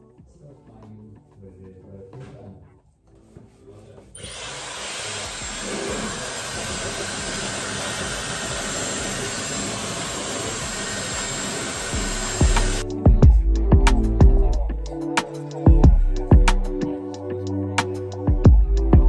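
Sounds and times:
hair dryer blowing: 4.2s - 12.9s.

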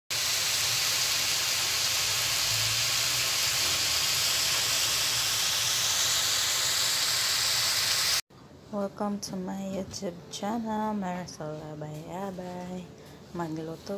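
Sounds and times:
beans sizzling in a pan: 0.1s - 8.2s.

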